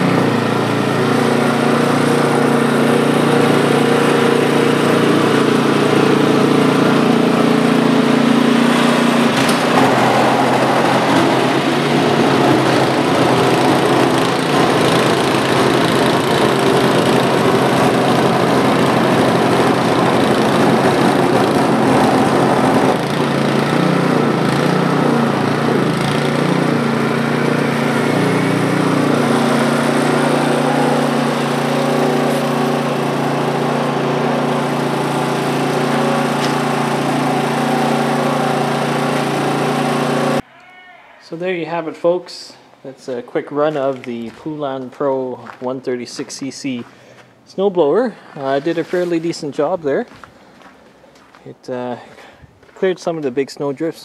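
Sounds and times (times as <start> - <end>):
auger throwing snow: 0.0 - 40.4
snowblower engine running: 0.0 - 40.4.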